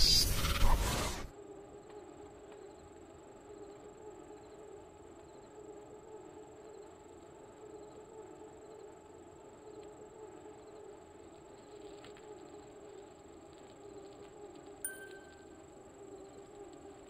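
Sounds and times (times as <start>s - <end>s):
faint steady hum: 0.0s - 17.0s
thin high-pitched whine: 14.8s - 16.4s.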